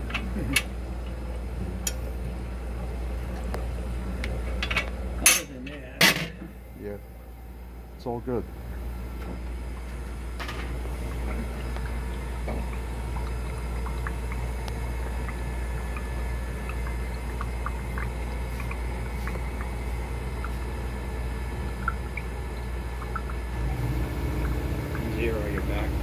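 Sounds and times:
low machine hum: 0.0 - 26.0.

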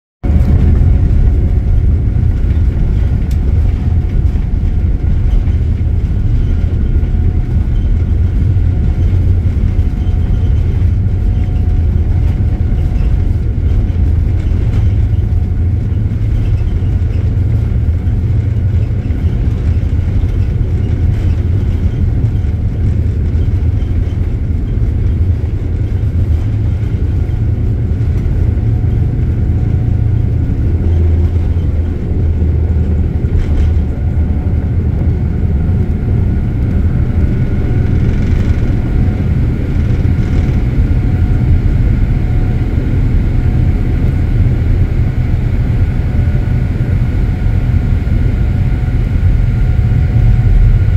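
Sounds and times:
faint steady whine: 0.2 - 50.9
jet engines rumbling: 0.2 - 50.9.

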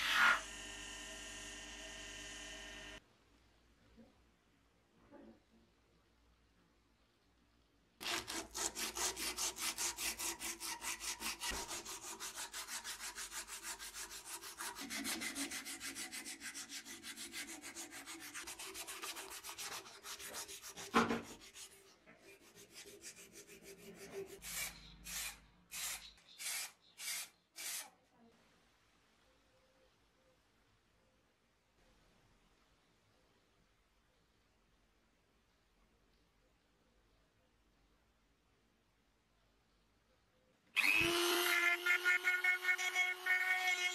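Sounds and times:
sandpaper rasping: 8.0 - 27.9.

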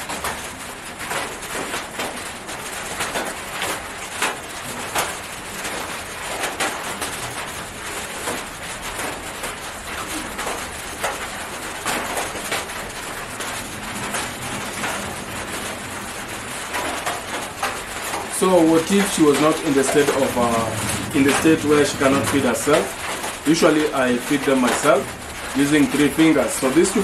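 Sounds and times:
steady hiss: 12.4 - 27.0.

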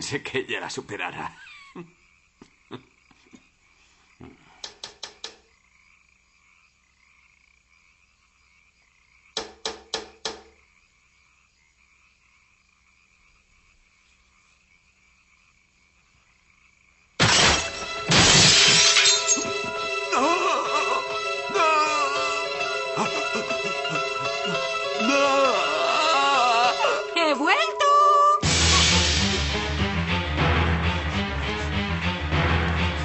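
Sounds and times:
frog croaking: 0.0 - 17.2, 18.8 - 27.9.

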